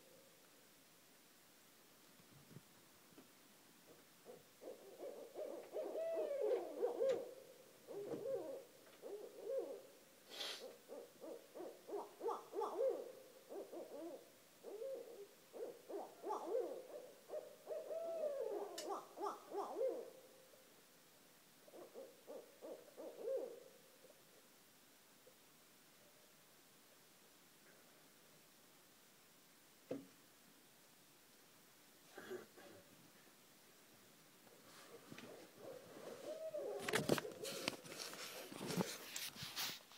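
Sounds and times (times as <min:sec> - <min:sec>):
owls hooting: 0:04.2 - 0:20.2, 0:21.6 - 0:23.7, 0:34.8 - 0:37.8
owl wails: 0:04.6 - 0:07.3, 0:07.9 - 0:09.8, 0:10.6 - 0:20.1, 0:35.3 - 0:37.7.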